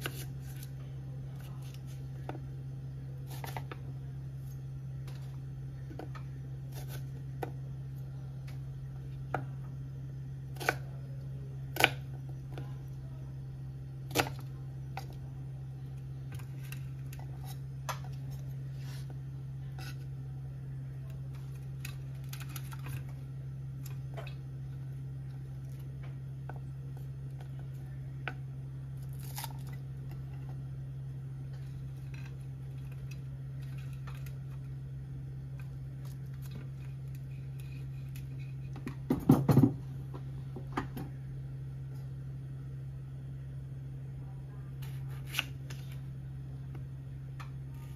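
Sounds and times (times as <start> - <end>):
steady low hum: 0.0 - 47.9.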